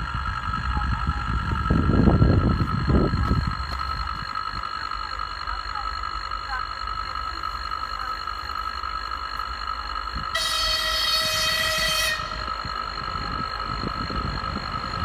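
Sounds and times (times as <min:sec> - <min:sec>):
engine and wheels rumbling: 0:00.0 - 0:15.0
locomotive horn: 0:10.3 - 0:12.5.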